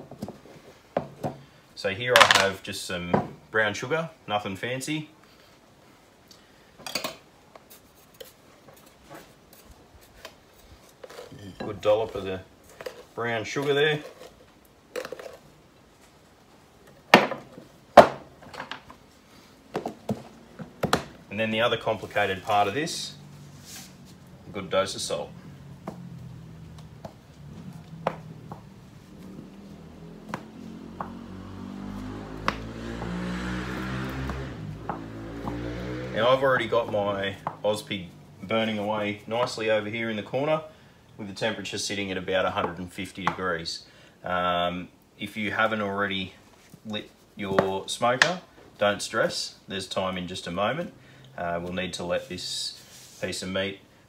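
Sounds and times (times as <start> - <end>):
spoon scraping plastic tub: 10.9 - 15.5.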